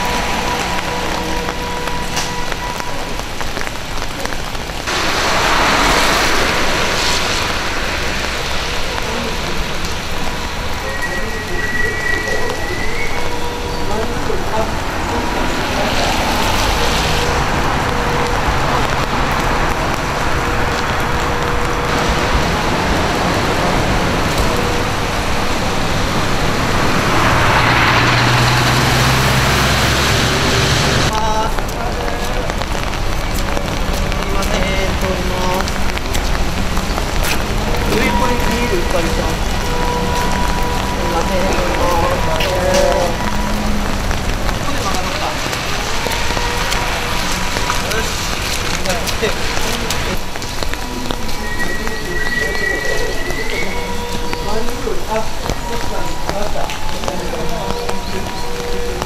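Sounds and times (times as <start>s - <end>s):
rain on a wet street: 0.0s - 59.0s
traffic engines: 0.0s - 59.0s
truck engine humming: 0.0s - 59.0s
tyre hiss on wet road: 3.5s - 13.4s.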